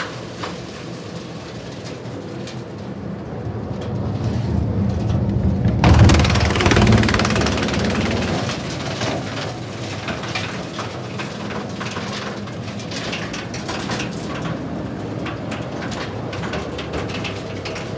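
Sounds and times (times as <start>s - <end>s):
wood chipper running: 5.3s - 17.9s.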